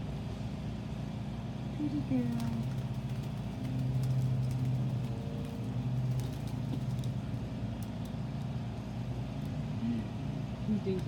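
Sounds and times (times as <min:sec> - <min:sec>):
steady low hum: 0:00.0 - 0:11.0
wings flapping and fluttering: 0:02.0 - 0:08.2.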